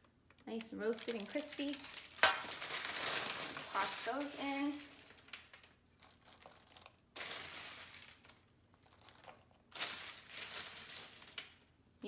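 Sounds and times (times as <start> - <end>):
chickpeas dropping into bowl: 0.5 - 5.7.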